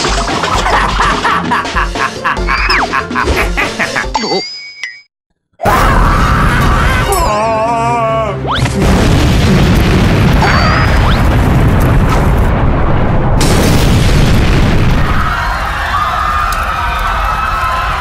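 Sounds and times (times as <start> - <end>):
rumbling explosion boom: 8.8 - 15.4.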